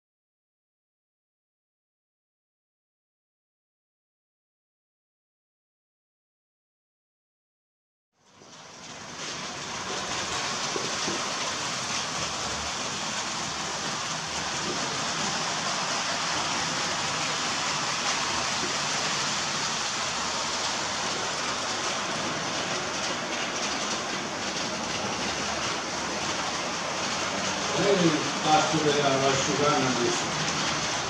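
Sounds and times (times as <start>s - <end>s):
model trains rolling: 8.4s - 31.0s.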